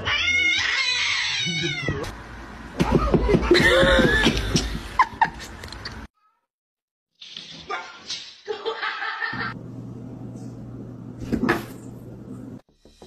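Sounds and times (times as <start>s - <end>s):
cats yowling: 0.0s - 2.1s.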